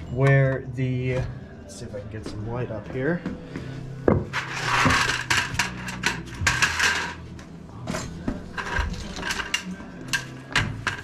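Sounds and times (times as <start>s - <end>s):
rubbing scraping sounds: 4.3s - 7.2s.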